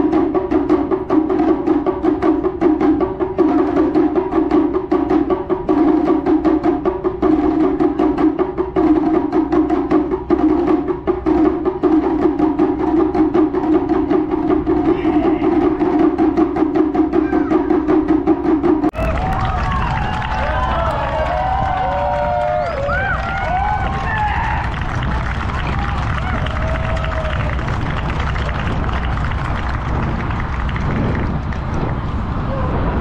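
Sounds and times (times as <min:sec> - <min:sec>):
taiko drums struck with sticks: 0:00.0 - 0:19.5.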